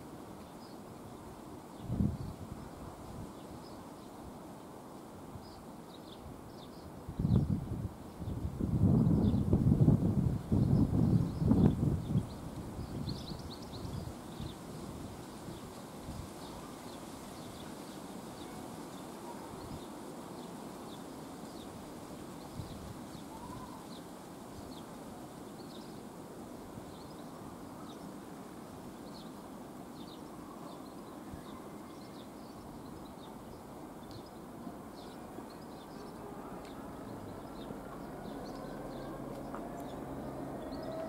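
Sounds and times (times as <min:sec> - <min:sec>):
birds chirping: 0:30.0 - 0:41.0
distant locomotive engine rumble: 0:36.2 - 0:41.0.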